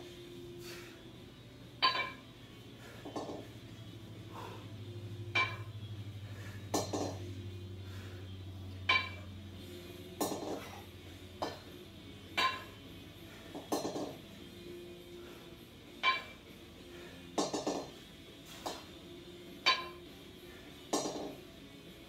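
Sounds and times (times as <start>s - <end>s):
kettlebells clinking together: 1.8s - 2.3s, 5.3s - 5.8s, 8.8s - 9.3s, 12.3s - 12.8s, 16.0s - 16.5s, 19.6s - 20.1s.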